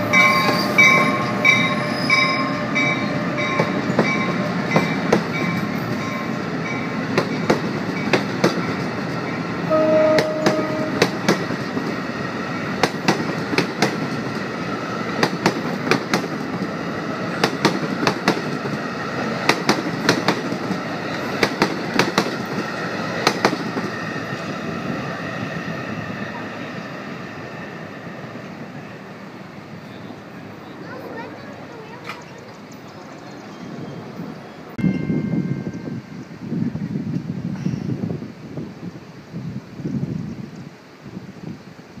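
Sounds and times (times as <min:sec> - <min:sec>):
train rumble: 0:00.0 - 0:42.0
train wheels clicking over rail joints: 0:00.2 - 0:09.4, 0:10.2 - 0:24.5.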